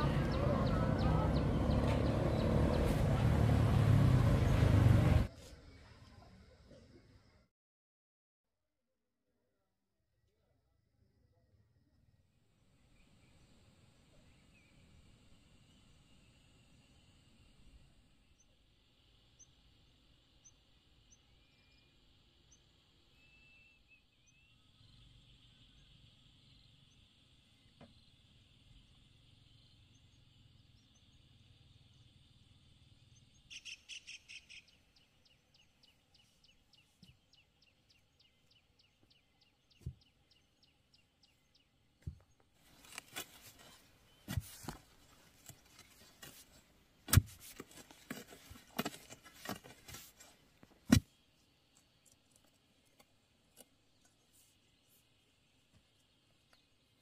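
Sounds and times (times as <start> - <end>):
bird chirping trill: 0.0 - 3.0, 19.2 - 43.0
hoe chopping into soil: 47.1 - 49.6, 50.8 - 51.1.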